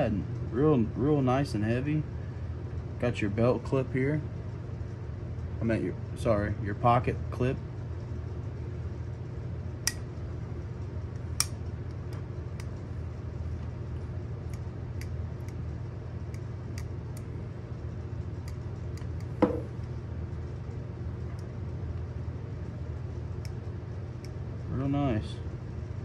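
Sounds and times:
steady low hum: 0:00.0 - 0:26.0
multi-tool metal clicks and snaps: 0:09.8 - 0:10.0, 0:11.2 - 0:12.8.

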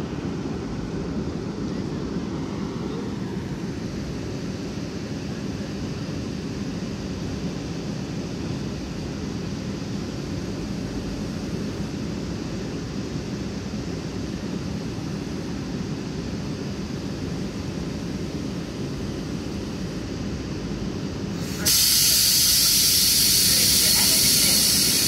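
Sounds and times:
train equipment humming: 0:17.0 - 0:25.0.

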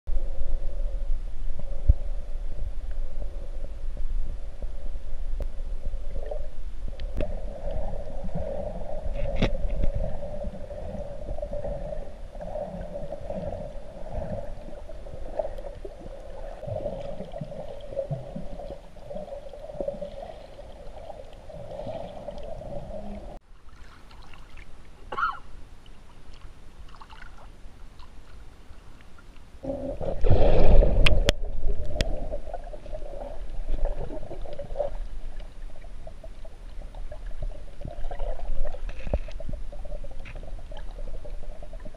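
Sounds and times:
underwater low drone: 0:00.1 - 0:23.4
water gurgling and rumbling: 0:00.1 - 0:25.2, 0:29.6 - 0:41.9
rushing water surge: 0:29.7 - 0:32.8.

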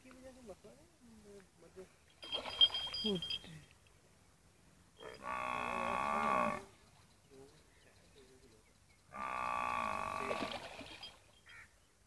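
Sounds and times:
cattle mooing: 0:05.0 - 0:06.7, 0:09.1 - 0:10.5.

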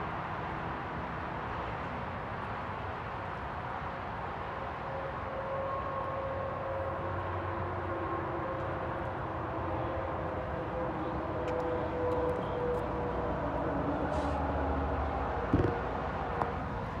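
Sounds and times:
traffic engine hum: 0:00.0 - 0:17.0
close thump: 0:15.5 - 0:15.8.

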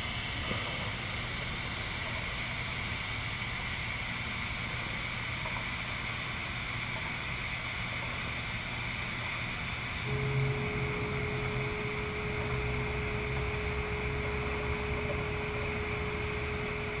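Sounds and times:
welding arc hissing: 0:08.2 - 0:17.0
low electrical hum: 0:08.5 - 0:17.0.

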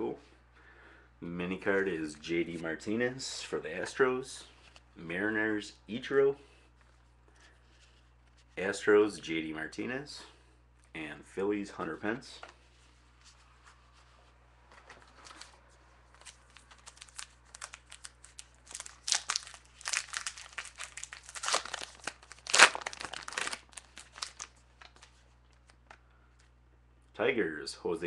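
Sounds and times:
wrapper crinkling and tearing: 0:15.0 - 0:26.0.

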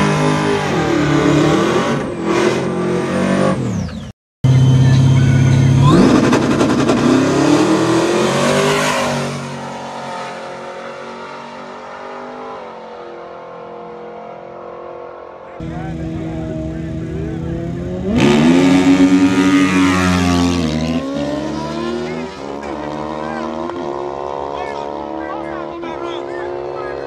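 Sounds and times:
drag car engine revving: 0:04.5 - 0:12.6, 0:15.6 - 0:27.0.

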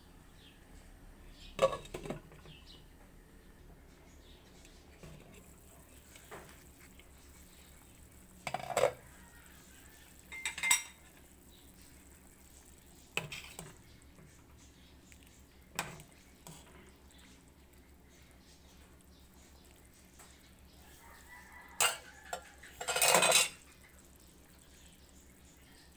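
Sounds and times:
metal utensil clattering in pot: 0:01.6 - 0:02.2, 0:08.4 - 0:09.0, 0:10.3 - 0:11.1, 0:21.8 - 0:23.6.

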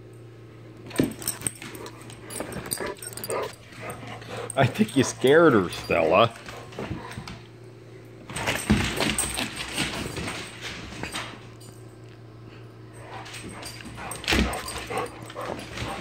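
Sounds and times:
dogs scuffling on hardwood floor: 0:00.8 - 0:07.4, 0:08.2 - 0:11.8, 0:13.0 - 0:16.0
dog noises: 0:01.2 - 0:07.4, 0:13.0 - 0:16.0.

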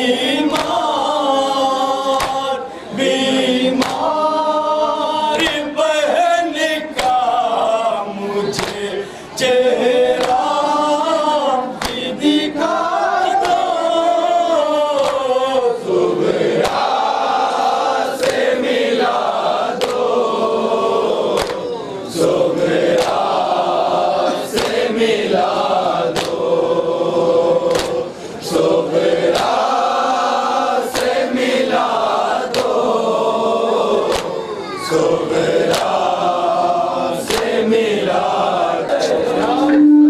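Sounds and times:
men chanting a lament: 0:00.0 - 0:40.0
hands slapping chests: 0:00.5 - 0:00.8, 0:02.2 - 0:02.4, 0:03.8 - 0:04.1, 0:08.6 - 0:08.8, 0:10.2 - 0:10.5, 0:11.8 - 0:12.0, 0:13.4 - 0:13.6, 0:15.0 - 0:15.3, 0:16.6 - 0:16.9, 0:18.2 - 0:18.5, 0:19.7 - 0:20.1, 0:21.3 - 0:21.7, 0:22.9 - 0:23.3, 0:24.5 - 0:24.9, 0:26.1 - 0:26.5, 0:27.7 - 0:28.0, 0:29.3 - 0:29.6, 0:30.9 - 0:31.3, 0:32.5 - 0:32.9, 0:34.1 - 0:34.4, 0:35.6 - 0:36.1, 0:37.2 - 0:37.6.

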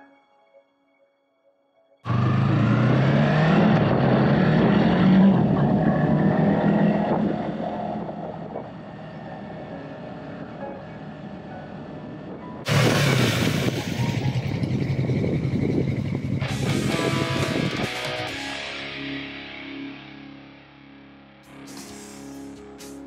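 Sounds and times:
motorcycle engine revving: 0:02.0 - 0:09.2, 0:12.7 - 0:18.4.

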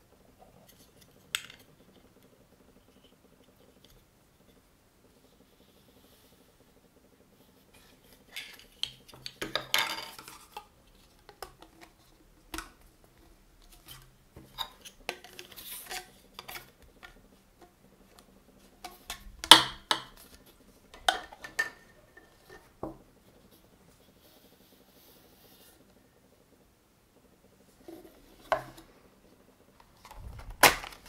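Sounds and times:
plastic parts knocking and clicking: 0:08.4 - 0:12.8, 0:18.8 - 0:21.8.

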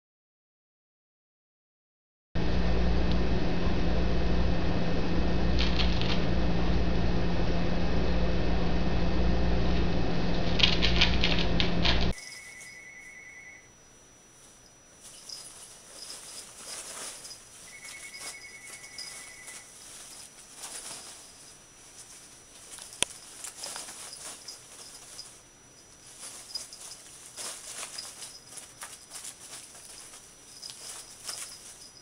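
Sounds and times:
rapid high pips: 0:12.2 - 0:32.0
packing peanuts rustling and squeaking: 0:14.3 - 0:32.0.

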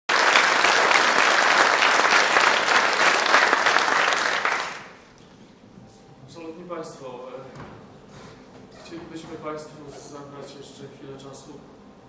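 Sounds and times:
audience applauding: 0:00.1 - 0:05.1.

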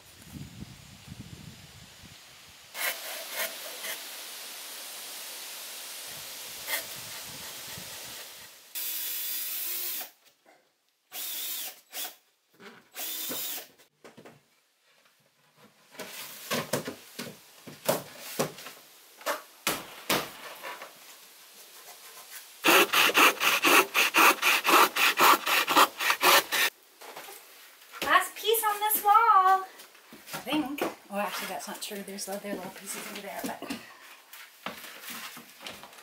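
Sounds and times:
power drill whirring: 0:08.8 - 0:10.2, 0:11.1 - 0:12.2, 0:12.9 - 0:13.7, 0:22.6 - 0:26.7
handsaw cutting a board: 0:22.6 - 0:26.7.

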